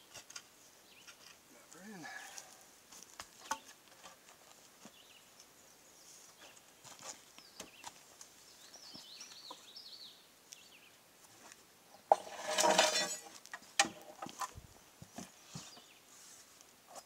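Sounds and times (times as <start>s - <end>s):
bird chirping: 0.8s - 2.5s, 4.8s - 11.0s
wood scraping against wood: 11.3s - 17.0s.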